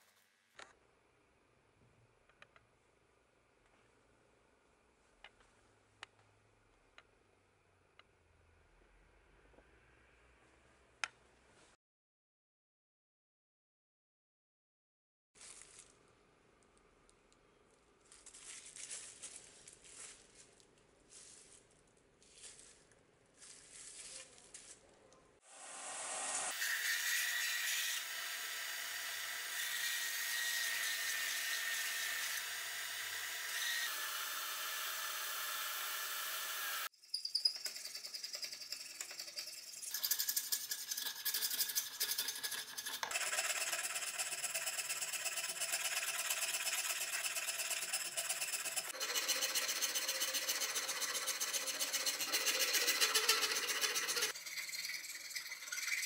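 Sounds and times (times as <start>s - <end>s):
hand file rasping on wood: 40.4s - 56.0s.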